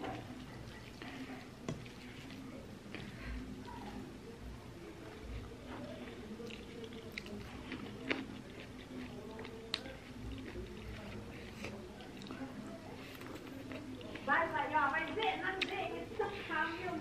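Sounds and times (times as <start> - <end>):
person chewing: 5.3 - 12.4, 13.0 - 14.3.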